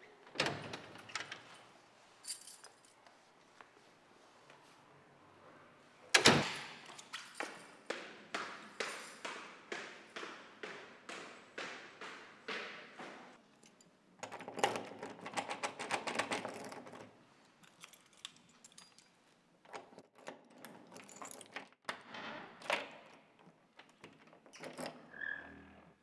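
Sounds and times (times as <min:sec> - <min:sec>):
keys jangling: 0:00.6 - 0:03.1, 0:06.6 - 0:07.8, 0:17.6 - 0:21.8
short squeak: 0:25.1 - 0:25.7.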